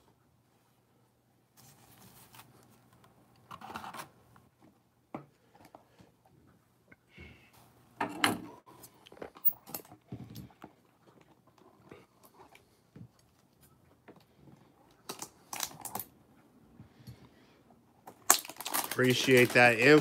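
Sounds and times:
hands handling trading cards: 18.1s - 20.0s.

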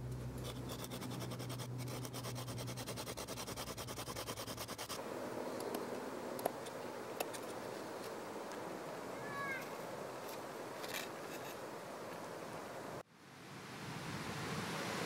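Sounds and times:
stone tool scraping wood: 0.4s - 5.0s
wooden stick rasping on rock: 0.4s - 5.0s.

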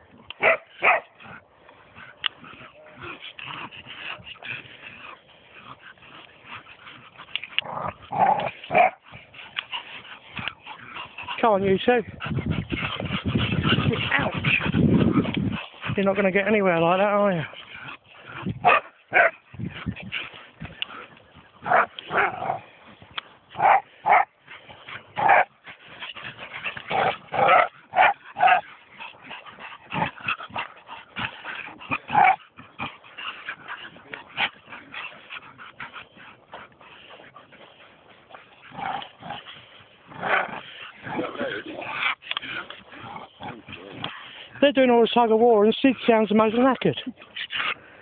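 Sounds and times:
dogs growling: 0.0s - 48.0s
dogs whining and yipping: 2.0s - 11.4s, 12.1s - 16.0s, 23.6s - 44.4s.

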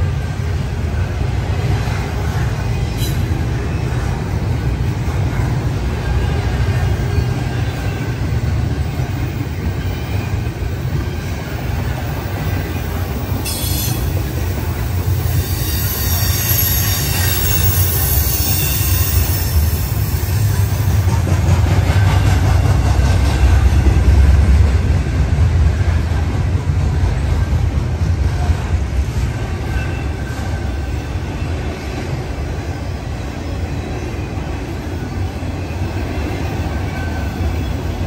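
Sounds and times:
train wheels rumbling on rail: 0.0s - 38.0s
high-pitched wheel squeal: 15.3s - 20.2s.

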